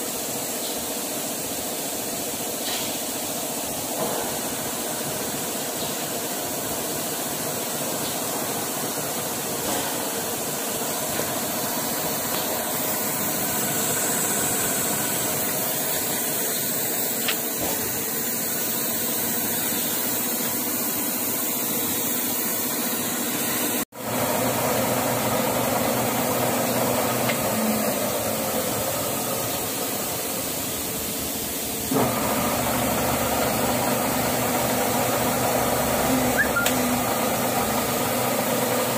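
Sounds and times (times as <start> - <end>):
metal lathe running: 10.7 - 38.9.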